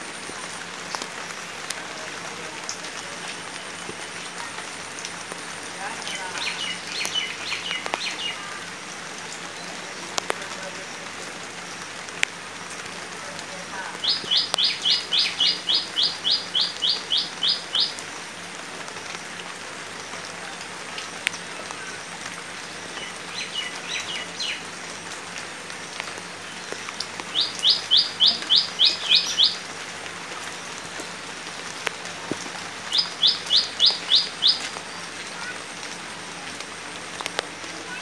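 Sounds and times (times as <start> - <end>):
light rain on leaves and water: 0.0 - 38.0.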